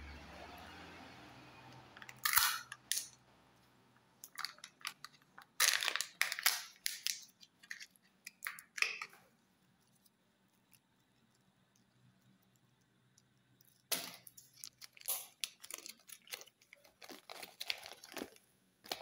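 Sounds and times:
plastic seal crinkling and tearing: 4.2 - 9.1, 13.9 - 19.0.

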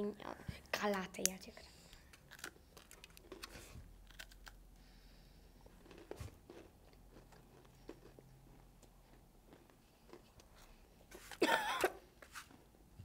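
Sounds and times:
crunching and chewing cereal: 1.8 - 11.4.

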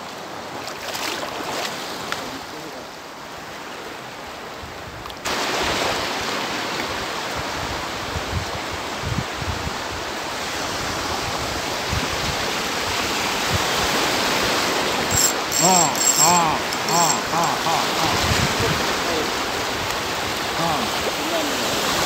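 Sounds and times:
small sea waves lapping: 0.0 - 9.0, 17.9 - 22.0
wind: 0.0 - 22.0
wind buffeting microphone: 17.9 - 21.3.

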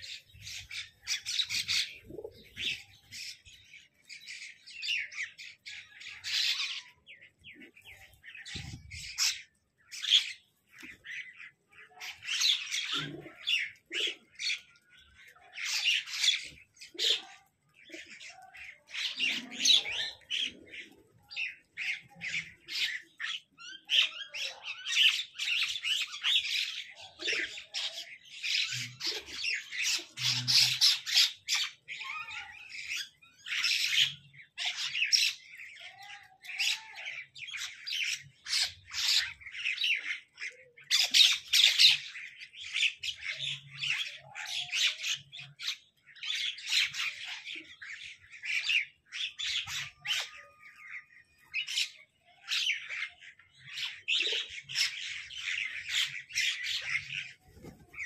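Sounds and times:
parakeets calling: 0.0 - 7.0, 27.5 - 36.0.

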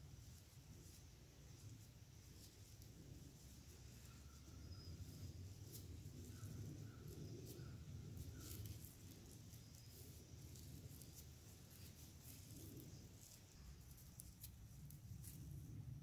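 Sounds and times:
grass blades rustling and crackling: 0.0 - 16.0
small ticks: 5.6 - 15.8.

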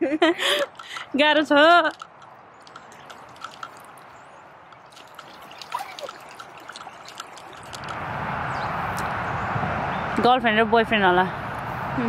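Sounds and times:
small water drips: 0.4 - 9.2
stream trickling: 0.4 - 9.4.

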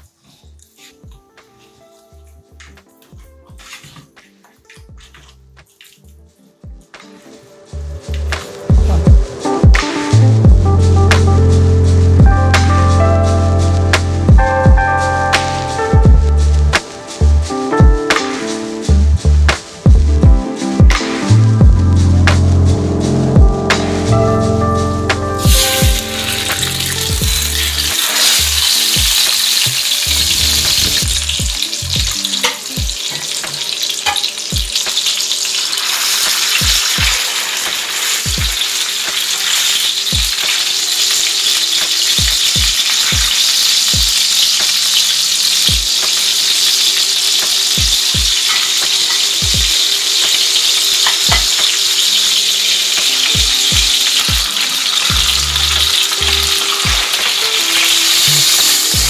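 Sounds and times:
fish sizzling in hot oil: 25.4 - 59.0.

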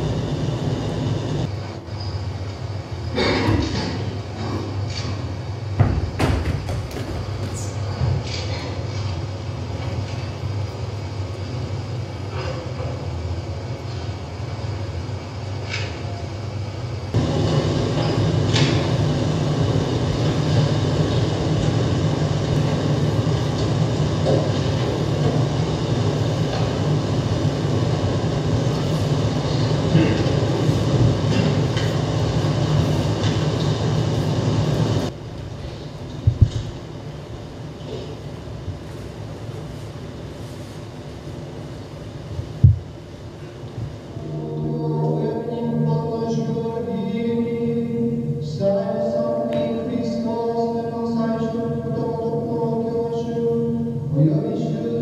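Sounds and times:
rumbling wash of noise: 0.0 - 1.5
indistinct voices: 44.1 - 55.0.

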